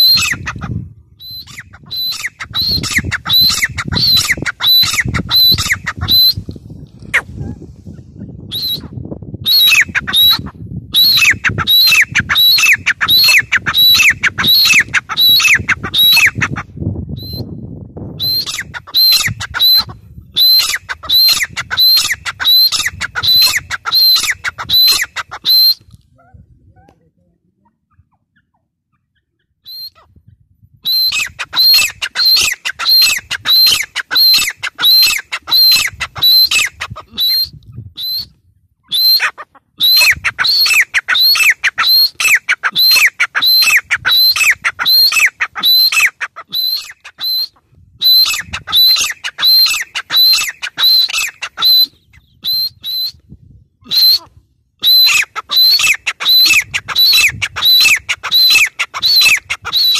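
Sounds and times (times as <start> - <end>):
francolin calling: 1.2 - 6.4, 11.0 - 16.5.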